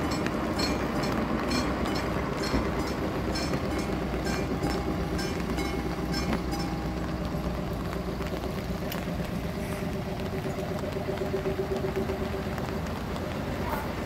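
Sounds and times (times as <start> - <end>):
level crossing bells ringing: 0.0 - 7.4
train wheels clicking over rail joints: 0.0 - 14.0.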